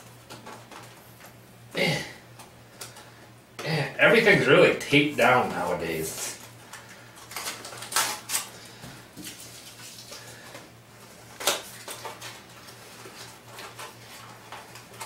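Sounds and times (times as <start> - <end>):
plastic packaging crinkling: 6.0 - 15.0.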